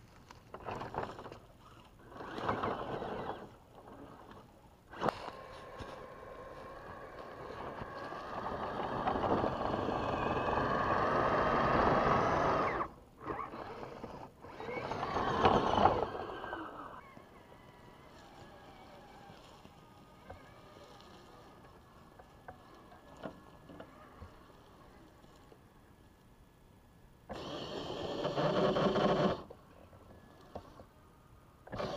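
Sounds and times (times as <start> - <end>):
electric motor whining: 1.7 - 25.6, 27.3 - 31.9.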